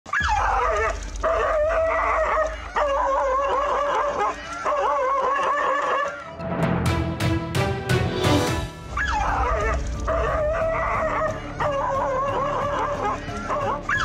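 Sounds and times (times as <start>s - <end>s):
dog yelping and whining: 0.1s - 6.2s.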